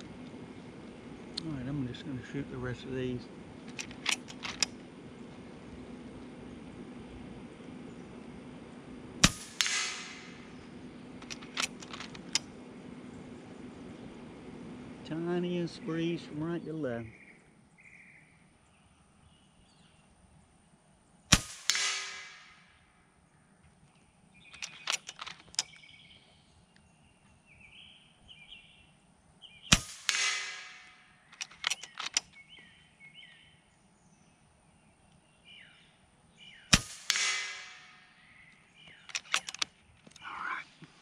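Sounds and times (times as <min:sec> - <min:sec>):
metallic lever clicks: 0:03.7 - 0:04.8, 0:11.2 - 0:12.5, 0:24.5 - 0:25.8, 0:31.3 - 0:32.3, 0:39.0 - 0:40.2
air rifle shot crack: 0:09.2 - 0:12.5, 0:21.3 - 0:22.8, 0:29.7 - 0:31.1, 0:36.7 - 0:38.3.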